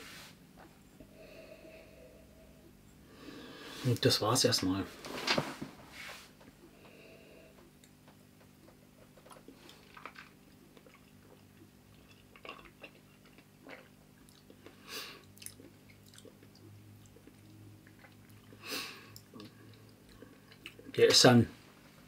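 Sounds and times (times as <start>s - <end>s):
low steady hum: 0.0s - 22.0s
breathy hiss: 1.1s - 4.1s, 5.9s - 7.6s
lips and tongue smacking: 8.6s - 20.9s.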